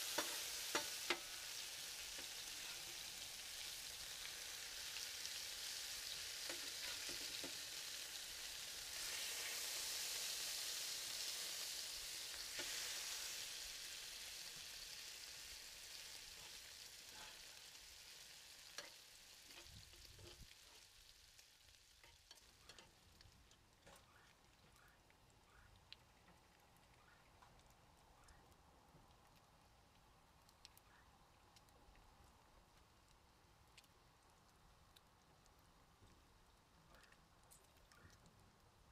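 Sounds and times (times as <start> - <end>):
bacon sizzling on a griddle: 0.0 - 24.0
small clicks and pops: 18.7 - 38.8.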